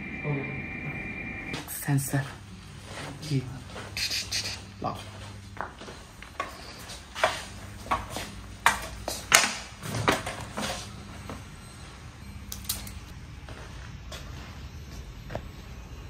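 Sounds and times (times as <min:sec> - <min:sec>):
faint steady hum: 0:00.0 - 0:03.4.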